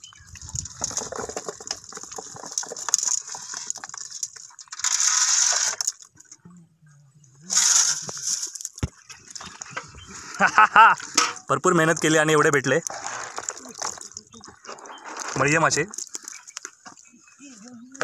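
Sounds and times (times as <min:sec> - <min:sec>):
fish clicking and splashing: 0:00.0 - 0:06.4, 0:11.9 - 0:17.1.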